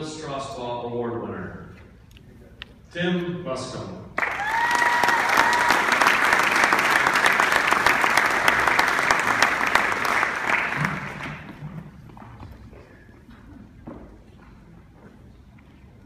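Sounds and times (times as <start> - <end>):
audience applauding: 4.2 - 11.6.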